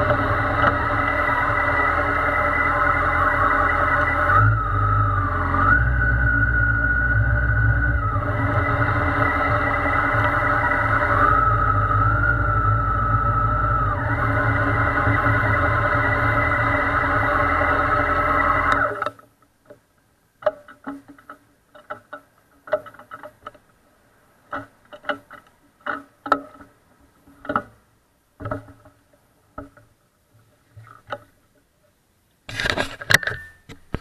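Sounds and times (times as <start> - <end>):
loud steady hum: 0.0 - 19.2.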